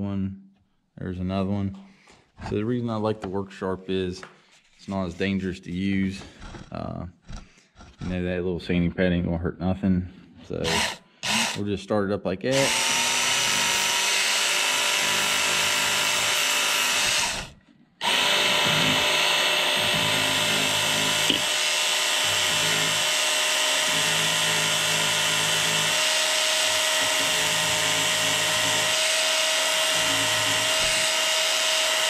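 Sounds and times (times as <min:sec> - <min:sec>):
belt sander grinding metal: 0:10.5 - 0:11.6, 0:12.5 - 0:32.0.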